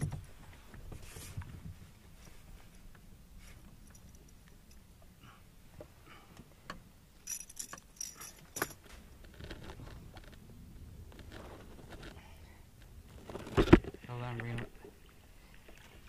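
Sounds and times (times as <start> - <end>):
soft handling noise: 0.0 - 4.8
metallic clinks and rattles: 7.2 - 9.6.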